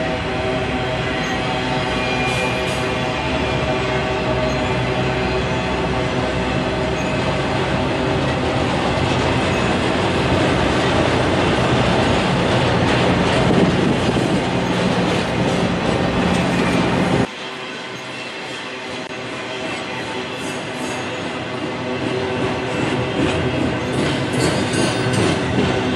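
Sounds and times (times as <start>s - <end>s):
freight train wheels on rails: 0.0s - 25.9s
wheels clicking on rails: 22.4s - 25.9s.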